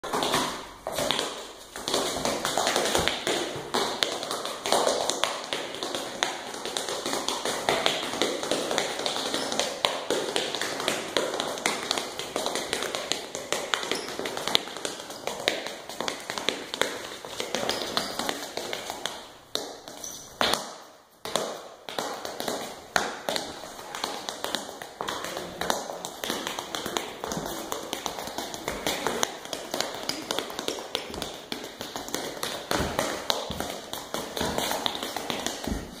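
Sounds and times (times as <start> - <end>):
tap shoes on concrete: 0.0 - 36.0.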